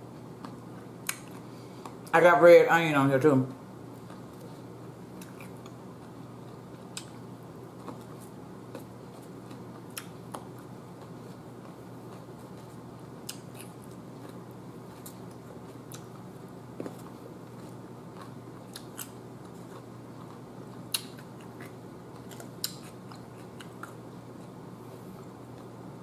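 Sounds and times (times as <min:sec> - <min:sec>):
steady low hum: 0:00.0 - 0:26.0
cucumber crunching while chewing: 0:05.2 - 0:24.6.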